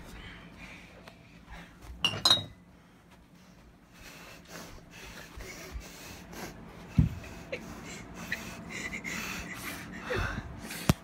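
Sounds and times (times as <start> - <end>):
close breathing and snorting: 3.9 - 11.0.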